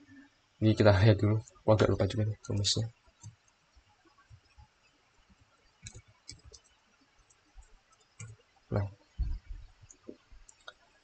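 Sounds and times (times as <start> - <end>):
computer keyboard typing: 5.8 - 6.7, 7.3 - 8.4.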